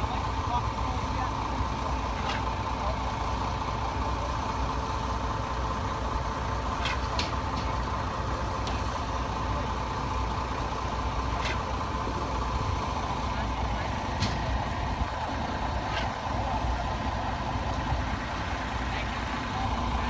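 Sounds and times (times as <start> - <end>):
diesel engines idling: 0.0 - 20.0.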